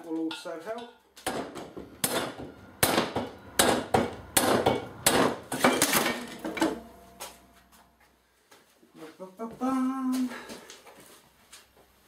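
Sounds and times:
hammer striking metal: 0:01.2 - 0:07.8.

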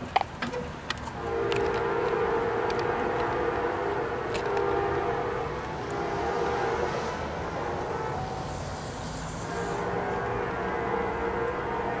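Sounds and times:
train running noise: 0:00.0 - 0:12.0
train air horn blasts: 0:01.2 - 0:12.0.

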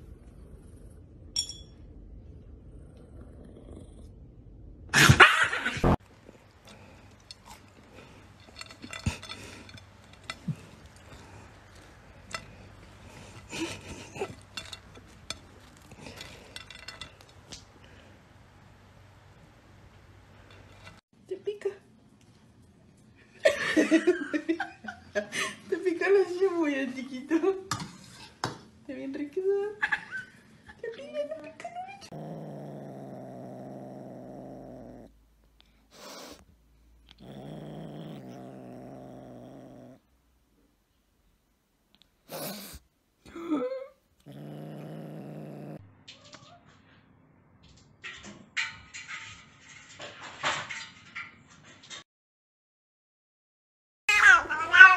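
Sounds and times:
kitten growling: 0:02.6 - 0:04.2, 0:32.0 - 0:40.1, 0:42.0 - 0:42.8, 0:44.2 - 0:45.8
kitten hissing: 0:35.9 - 0:36.5, 0:42.2 - 0:42.9.

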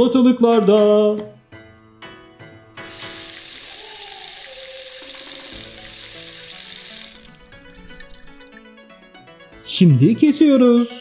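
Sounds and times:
light background music: 0:00.0 - 0:11.0
water running from tap: 0:02.8 - 0:08.6.

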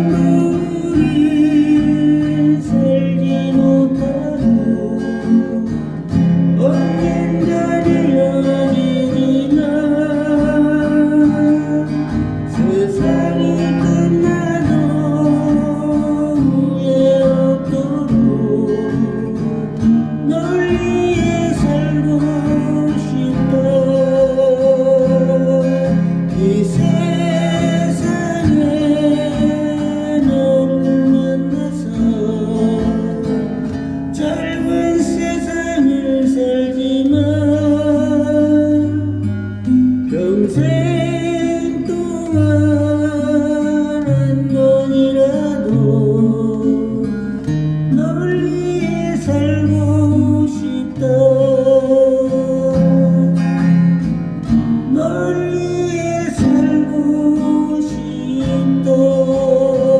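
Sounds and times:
person singing slow melody: 0:00.0 - 0:53.8, 0:54.8 - 0:59.9
acoustic guitar strummed and picked: 0:00.0 - 0:59.9.

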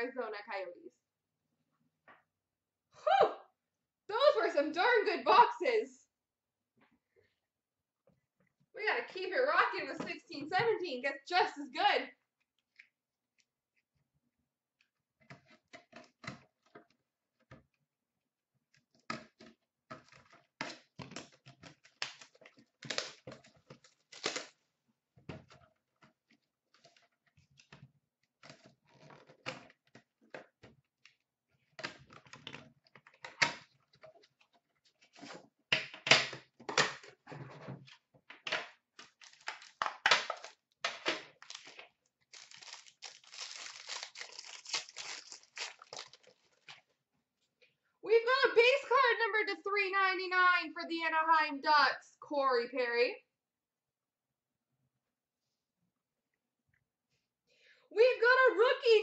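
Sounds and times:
wrapper crinkling: 0:21.8 - 0:24.6, 0:39.0 - 0:40.7, 0:41.3 - 0:46.8.

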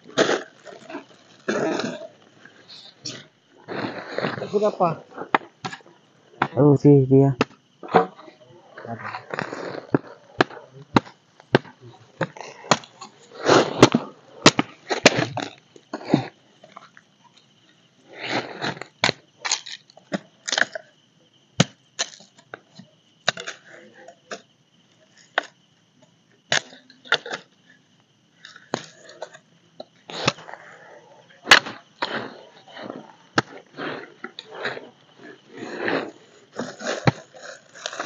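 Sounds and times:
machete chopping firewood: 0:10.4 - 0:12.9, 0:13.7 - 0:15.5.

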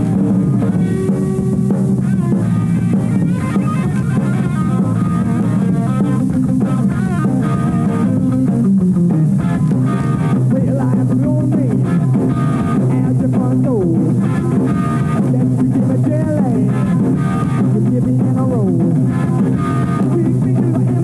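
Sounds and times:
guitar note sliding down: 0:00.0 - 0:10.6, 0:11.8 - 0:12.9, 0:16.7 - 0:17.8, 0:18.8 - 0:21.0
rock electric guitar: 0:00.0 - 0:21.0
steady bass line: 0:00.0 - 0:21.0.

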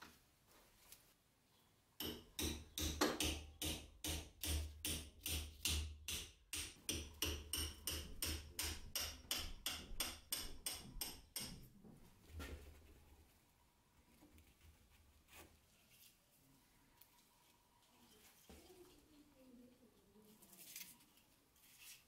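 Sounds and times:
hammer striking steel rod: 0:02.0 - 0:11.7.

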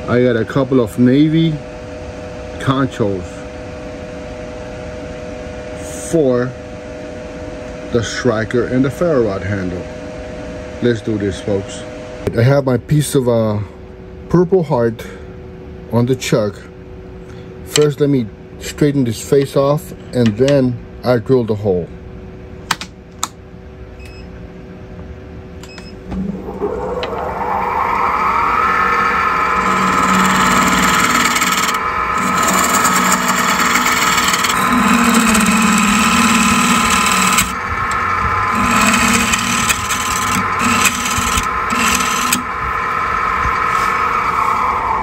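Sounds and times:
wood lathe motor whine: 0:26.4 - 0:45.0
gouge cutting wood: 0:29.6 - 0:37.6, 0:38.4 - 0:42.5.

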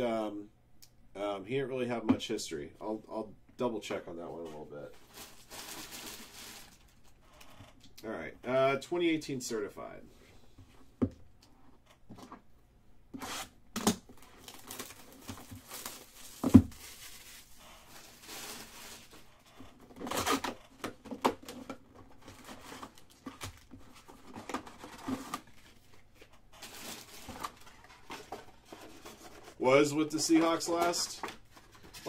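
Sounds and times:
wrapper tearing and crinkling: 0:05.0 - 0:07.0, 0:14.2 - 0:19.2.

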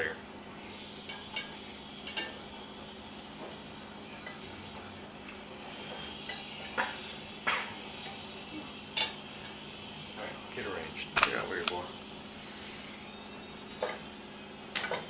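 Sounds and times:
steady low hum: 0:00.0 - 0:15.0
pans and utensils clinking: 0:01.0 - 0:02.5, 0:06.2 - 0:08.2, 0:09.0 - 0:09.6, 0:13.7 - 0:14.1.

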